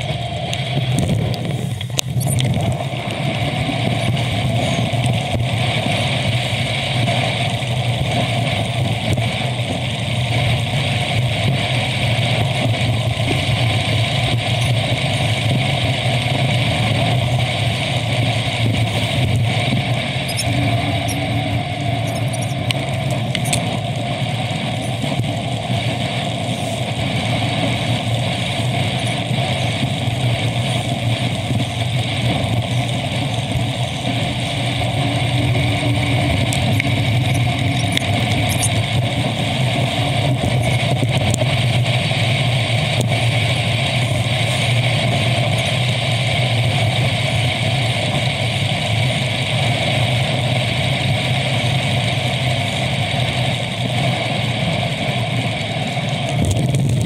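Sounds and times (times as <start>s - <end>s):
road noise hum: 0.0s - 57.0s.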